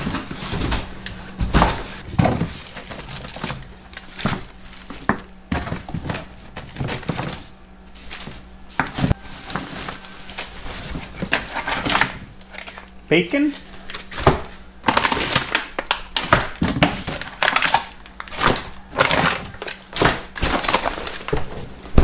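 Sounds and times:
boxes thumping and knocking: 0.0s - 7.5s
cardboard scraping: 4.0s - 12.7s.

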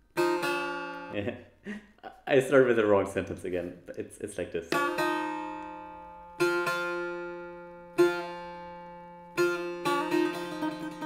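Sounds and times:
long-necked lute plucked: 0.0s - 1.3s, 4.7s - 11.0s.

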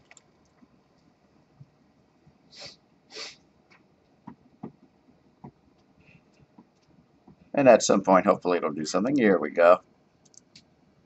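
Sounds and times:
faint clicks: 10.2s - 10.7s.

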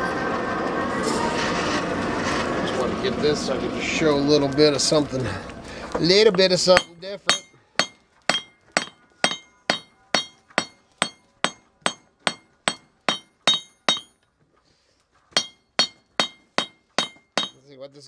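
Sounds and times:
hammer striking steel on anvil: 6.7s - 14.2s, 15.3s - 17.7s.

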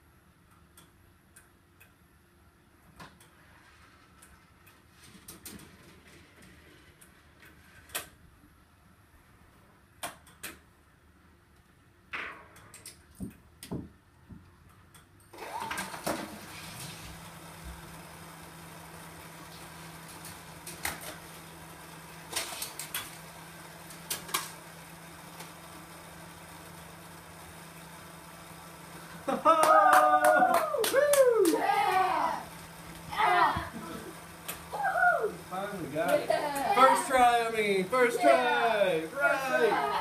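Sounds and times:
small electric motor humming: 31.3s - 40.0s.

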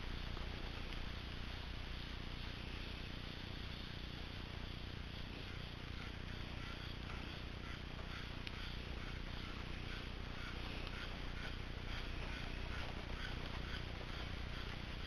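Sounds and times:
outdoor background hiss: 0.0s - 15.0s.

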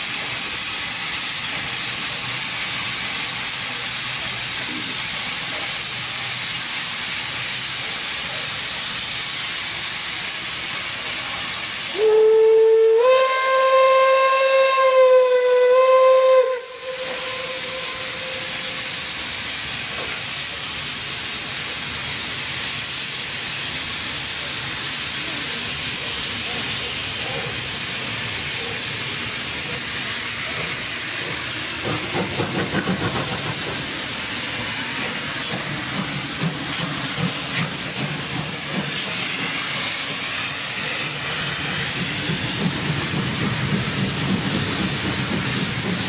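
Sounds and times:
steam hissing from locomotive: 0.0s - 46.0s
steam whistle blast: 11.9s - 19.1s.

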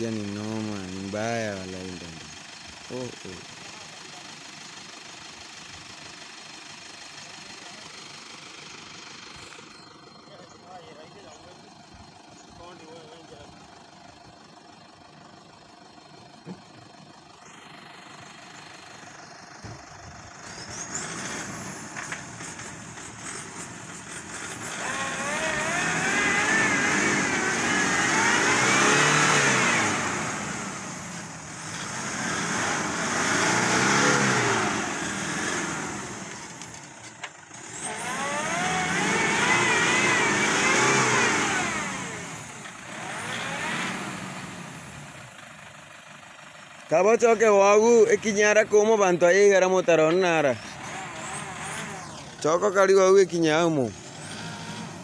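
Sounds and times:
diesel engine revving hard: 0.0s - 4.3s, 17.5s - 45.4s, 46.9s - 55.0s.

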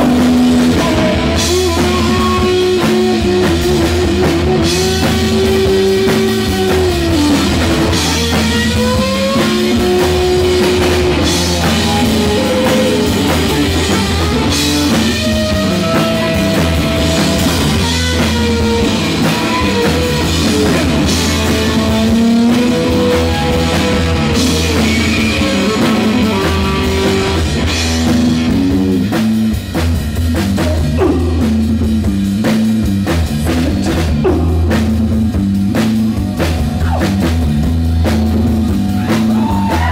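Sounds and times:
driving drum kit: 0.0s - 39.9s
electric guitar lead: 0.0s - 39.9s.

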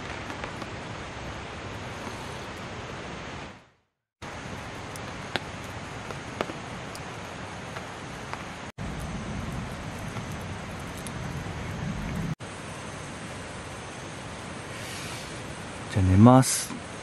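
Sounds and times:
campfire crackling and popping: 0.0s - 2.8s, 4.2s - 12.4s
fire hissing: 0.0s - 3.5s, 4.2s - 17.0s.

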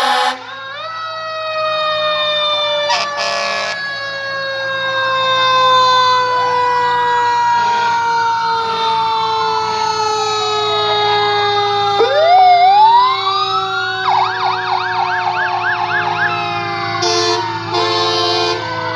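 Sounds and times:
loud horn blast: 0.0s - 0.5s, 2.9s - 3.8s, 17.0s - 18.9s
fire engine siren wailing: 0.0s - 18.9s
truck engines humming: 0.0s - 18.9s.

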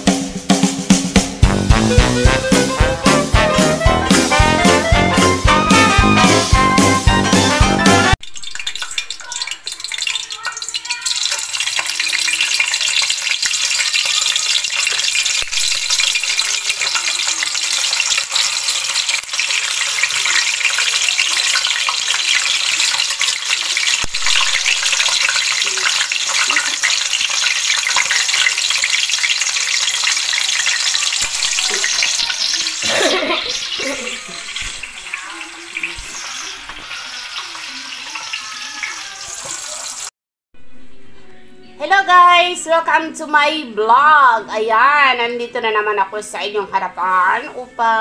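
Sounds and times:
chicken sizzling in hot oil: 2.3s - 40.1s.

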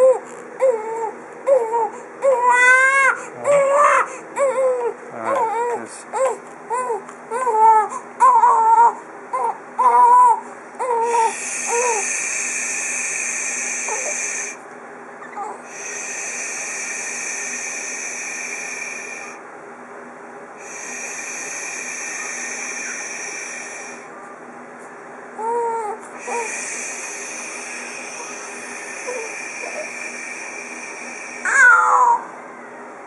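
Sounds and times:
baby crying: 0.0s - 12.0s, 15.3s - 15.6s, 25.4s - 26.6s, 31.4s - 32.3s
man shushing: 26.2s - 31.9s.

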